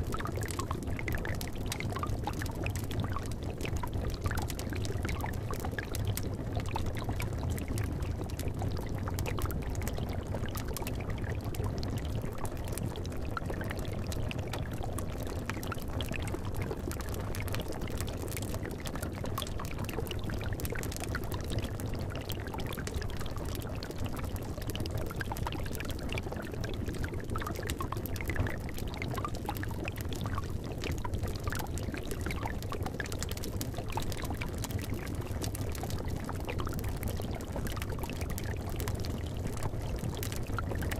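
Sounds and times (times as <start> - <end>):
liquid bubbling: 0.0 - 40.9.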